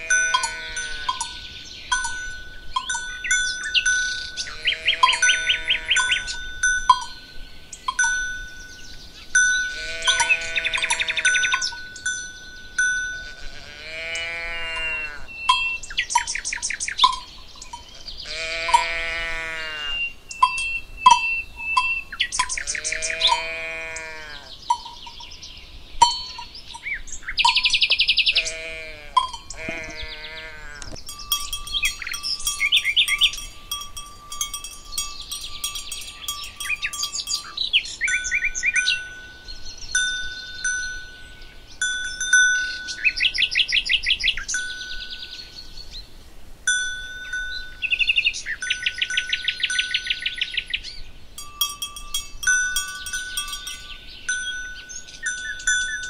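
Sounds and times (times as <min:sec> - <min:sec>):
cows mooing: 0:00.0 - 0:01.3, 0:04.4 - 0:06.4, 0:09.7 - 0:11.7, 0:13.1 - 0:15.3, 0:18.2 - 0:20.1, 0:22.5 - 0:24.6, 0:28.3 - 0:31.5
cowbells clinking: 0:00.0 - 0:45.8, 0:46.6 - 0:56.0
small birds singing: 0:00.0 - 0:56.0.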